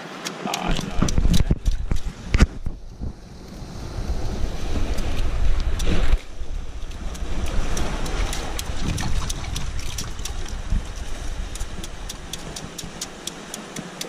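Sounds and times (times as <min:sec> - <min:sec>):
surf on rocks: 0:00.0 - 0:14.0
wind buffeting microphone: 0:00.7 - 0:14.0
small sharp clicks: 0:11.5 - 0:14.0.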